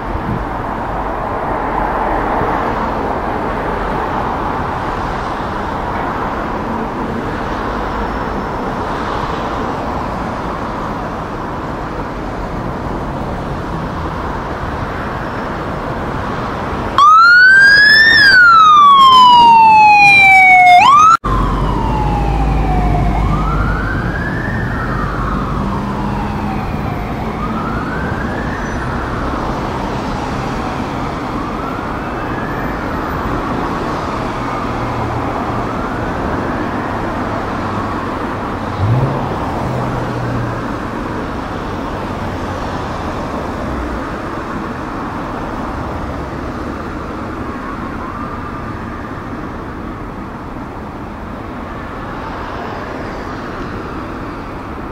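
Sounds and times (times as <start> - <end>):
city traffic noise: 0.0 - 54.9
fire engine wail siren: 15.1 - 43.3, 44.0 - 54.9.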